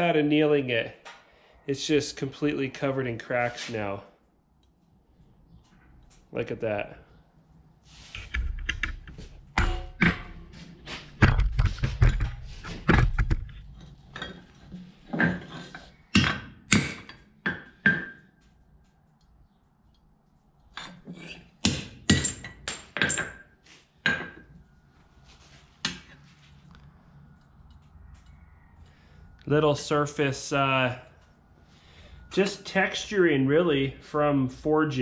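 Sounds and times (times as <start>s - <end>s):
hammer striking steel on anvil: 9.6s - 10.7s.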